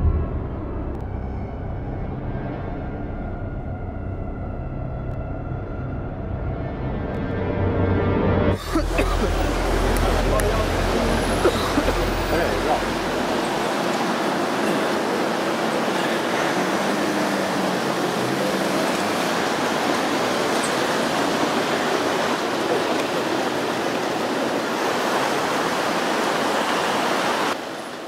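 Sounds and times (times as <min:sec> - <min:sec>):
city street and crowd din: 0:08.4 - 0:26.0.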